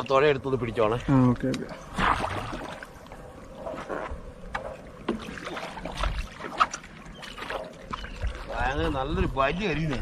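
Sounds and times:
paddle splashing in water: 0:01.8 - 0:03.0, 0:03.6 - 0:08.6.

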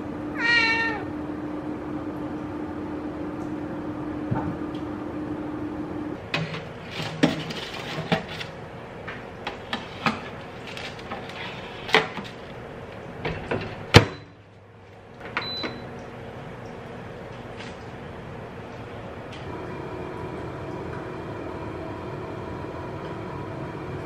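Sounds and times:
rack and tray clattering: 0:06.3 - 0:08.5.

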